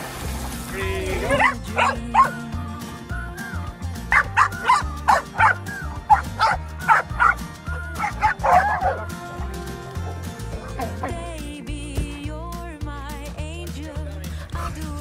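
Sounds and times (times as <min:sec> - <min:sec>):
background music: 0:00.0 - 0:15.0
dogs barking and yipping: 0:01.0 - 0:02.5, 0:03.5 - 0:11.3.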